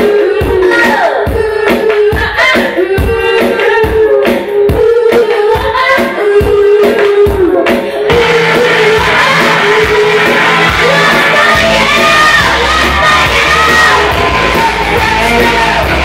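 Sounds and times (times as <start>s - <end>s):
woman singing: 0.0s - 16.0s
electric bass and guitar: 8.1s - 16.0s
low drum thumps: 8.1s - 16.0s.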